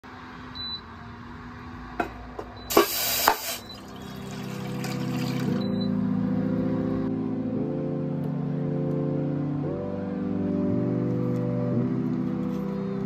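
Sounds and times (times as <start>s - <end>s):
cooktop beep: 2.5s - 6.0s
water poured into saucepan: 2.7s - 5.6s.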